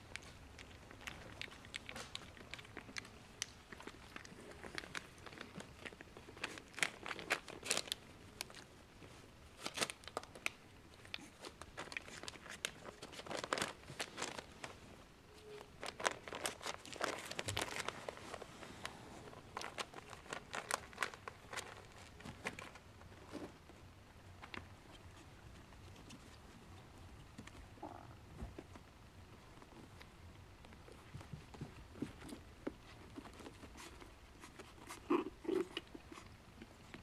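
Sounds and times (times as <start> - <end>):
newspaper crinkling under paws: 3.7 - 14.8, 15.6 - 23.6.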